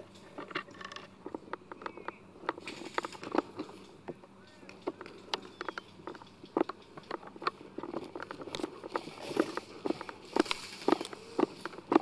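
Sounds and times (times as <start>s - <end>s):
footsteps on grass: 7.2s - 12.0s
rustle: 8.0s - 12.0s.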